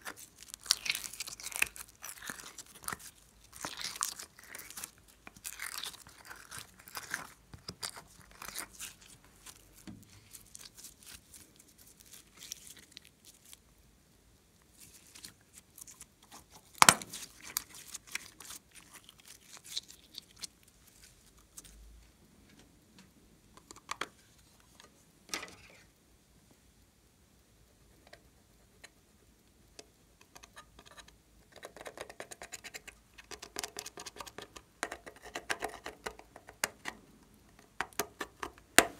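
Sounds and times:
slime sticky crackles: 0.0s - 13.6s, 14.7s - 21.8s
dry scratching of eyeshadow: 14.8s - 21.8s.

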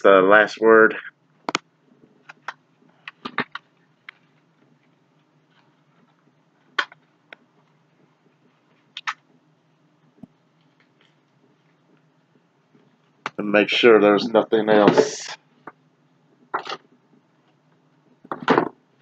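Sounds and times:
faint room hum: 0.0s - 19.0s
playing cards clicking and tapping: 2.2s - 4.2s, 9.0s - 9.2s, 18.3s - 18.8s.

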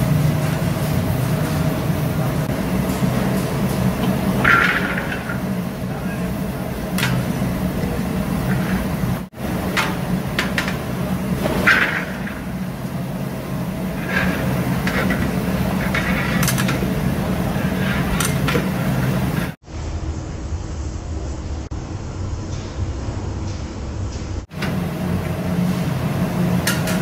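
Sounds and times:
steady low hum: 0.0s - 27.0s.

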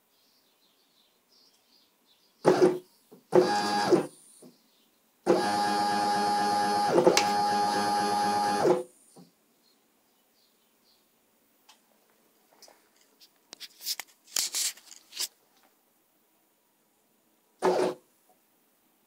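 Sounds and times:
stepper motors whining: 5.3s - 8.8s.

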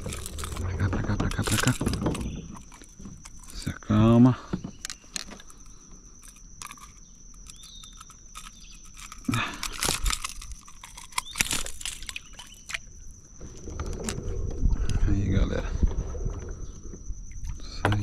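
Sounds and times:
low rumble: 0.0s - 4.0s, 13.5s - 17.7s
crackling rustle: 0.0s - 4.2s, 4.8s - 14.9s
handling clicks and knocks: 0.0s - 14.2s, 17.8s - 18.0s.

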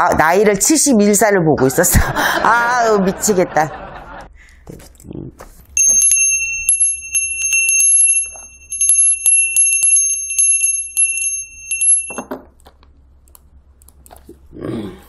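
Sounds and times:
bell ringing: 5.8s - 12.3s.

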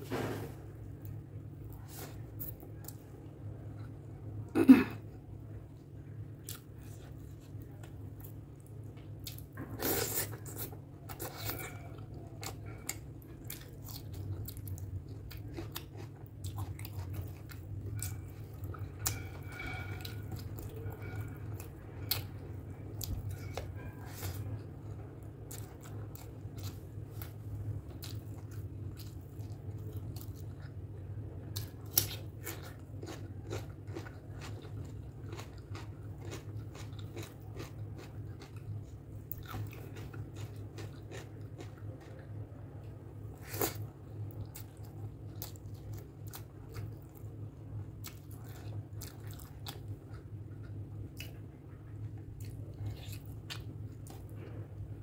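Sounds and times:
steady low hum: 0.0s - 55.0s
chewing with wet mouth clicks: 25.5s - 30.8s, 31.6s - 42.3s, 43.4s - 47.3s, 48.0s - 54.6s.

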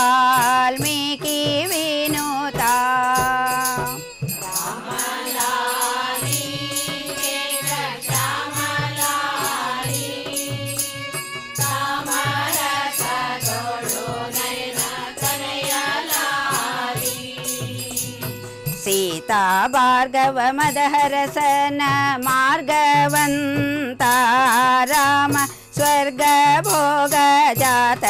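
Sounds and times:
steady percussion beat: 0.0s - 19.9s, 20.5s - 28.0s
women singing in unison: 0.0s - 28.0s
violin: 2.1s - 20.8s.

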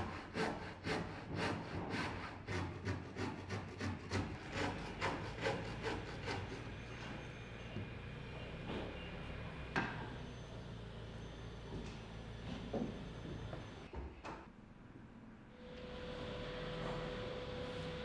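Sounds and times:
hand saw cutting wood: 0.0s - 6.8s.

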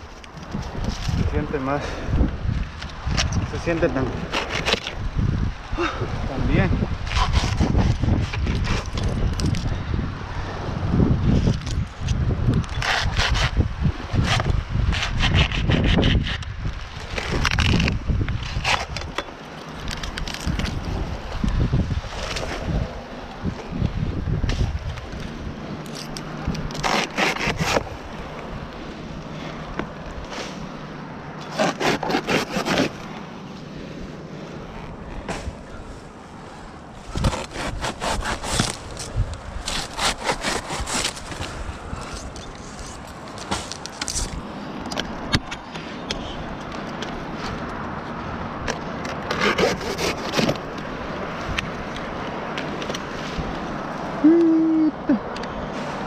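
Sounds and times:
dry palm fronds rustling: 0.0s - 54.3s
wind noise: 0.0s - 56.0s
hand saw cutting palm stems: 3.6s - 5.0s, 7.0s - 9.0s, 12.6s - 19.2s, 25.9s - 28.0s, 31.4s - 33.2s, 37.0s - 44.4s, 49.1s - 50.7s.

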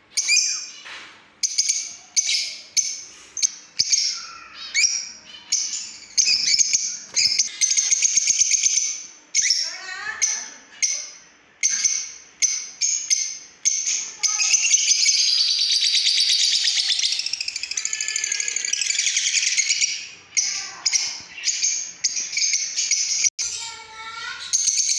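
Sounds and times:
lovebirds chirping: 0.2s - 24.9s.

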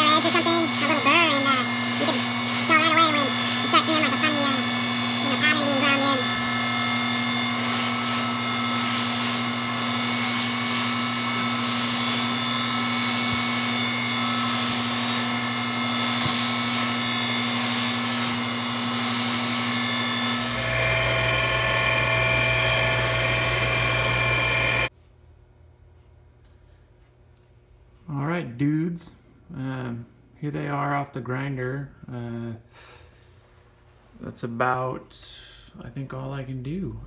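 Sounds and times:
surface grinder grinding steel: 0.0s - 24.9s.

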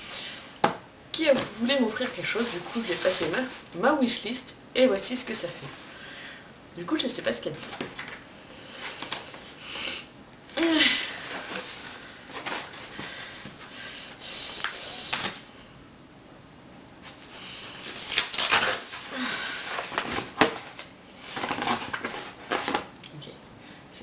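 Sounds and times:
cardboard parcel tearing: 17.0s - 22.9s.

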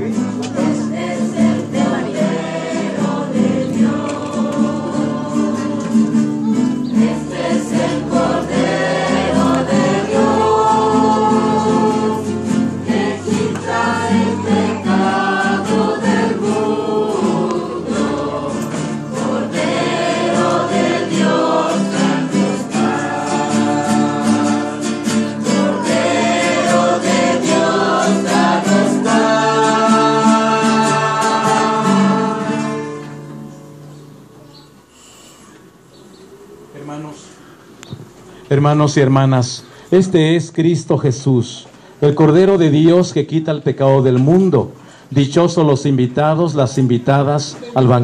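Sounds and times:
choir singing a hymn: 0.0s - 33.9s
strummed acoustic guitars: 0.0s - 35.8s.

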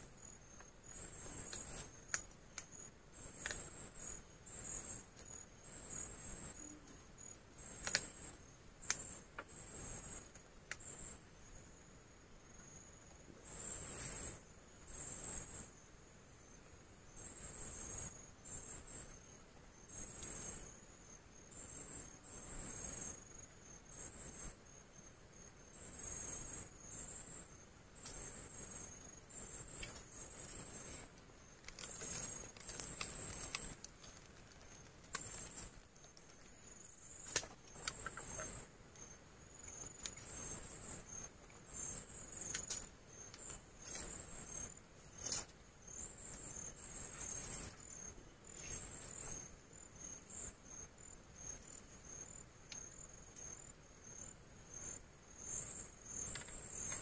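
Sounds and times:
crickets chirping: 0.0s - 57.0s.

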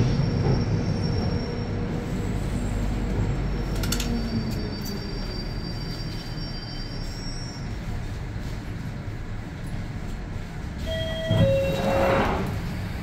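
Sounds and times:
train low rumble: 0.0s - 13.0s
wheel squeal: 3.5s - 7.8s, 10.8s - 12.5s.

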